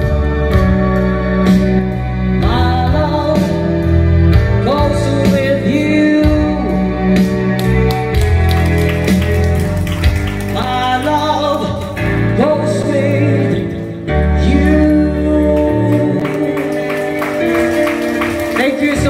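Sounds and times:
sustained bass and chords: 0.0 - 19.0
person singing: 2.4 - 7.3, 10.4 - 19.0.

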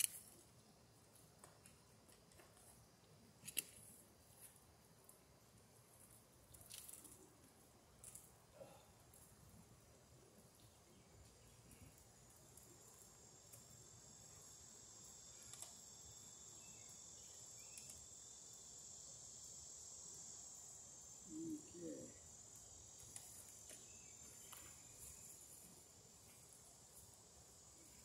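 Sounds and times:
high-pitched insect chorus: 8.0 - 28.0.

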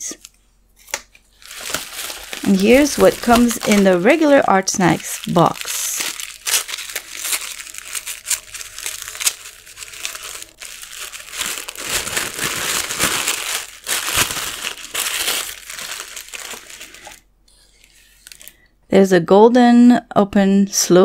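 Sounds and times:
tissue paper crinkling: 1.3 - 17.2.

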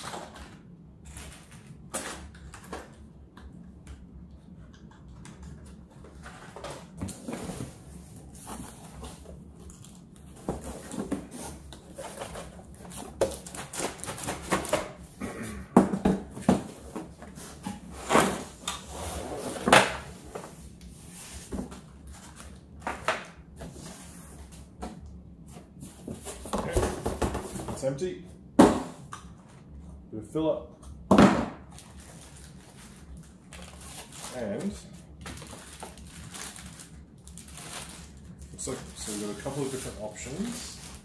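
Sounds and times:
cardboard rustling and scraping: 6.0 - 15.0, 37.5 - 41.0.

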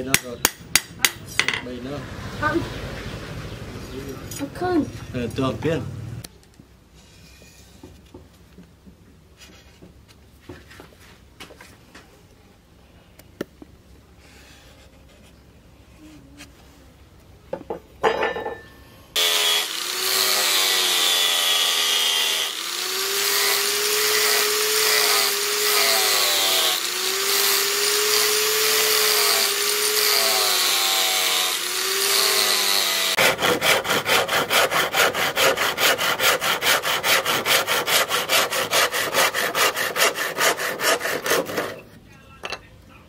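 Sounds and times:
angle grinder sanding wood: 19.2 - 41.8.

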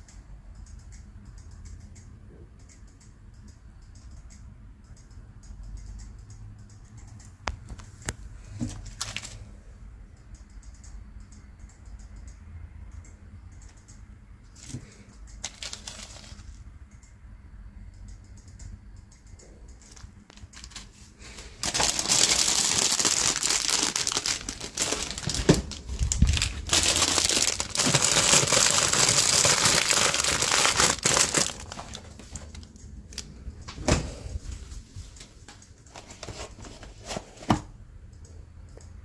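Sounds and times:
plastic packaging crinkling: 8.8 - 9.4, 15.4 - 16.5, 19.9 - 21.0, 21.6 - 32.7.

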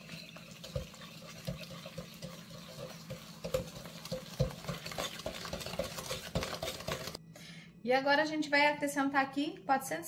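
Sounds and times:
whisk scraping glass bowl: 0.0 - 7.2.

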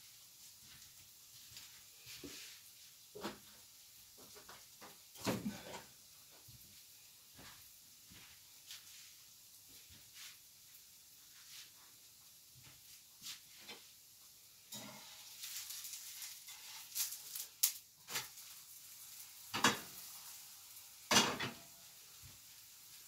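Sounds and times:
pancake sizzling in pan: 0.0 - 23.0
pan and utensils clanking: 4.2 - 6.0, 14.6 - 18.7, 19.4 - 20.4, 21.0 - 21.9
spatula scraping pan: 14.7 - 17.3.

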